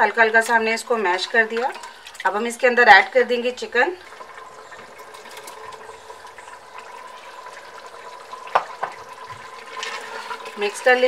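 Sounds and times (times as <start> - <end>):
food sizzling in pressure cooker: 0.0 - 11.0.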